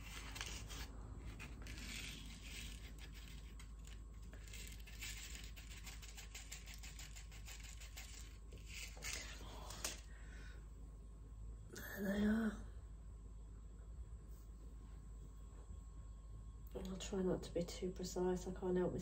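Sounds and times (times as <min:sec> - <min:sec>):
hands rustling seeds: 0:00.0 - 0:10.0.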